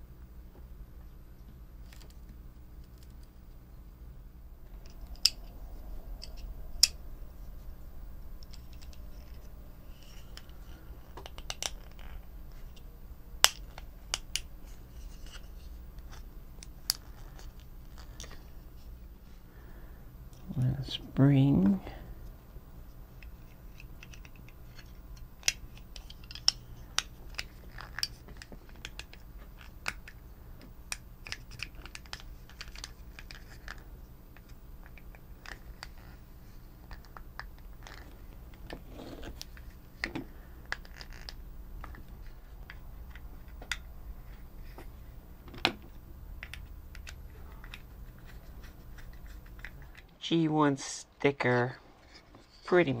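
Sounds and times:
faint low hum: 0.0s - 53.0s
plastic parts clicking and scraping: 8.4s - 12.8s, 13.4s - 18.6s, 23.2s - 50.2s.

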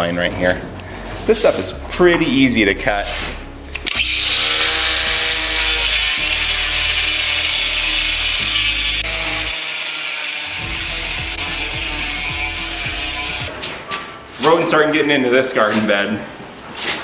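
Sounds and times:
angle grinder cutting metal: 3.8s - 13.5s.

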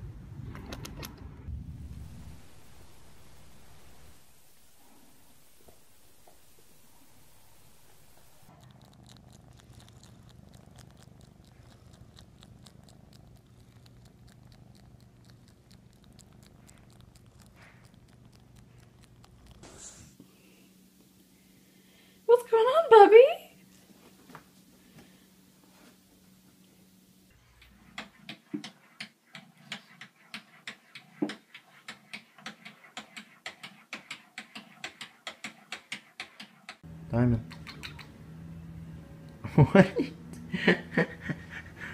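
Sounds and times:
cat purring: 1.5s - 20.2s, 36.8s - 39.7s
cat mouth clicks: 8.5s - 19.6s, 37.4s - 38.1s.

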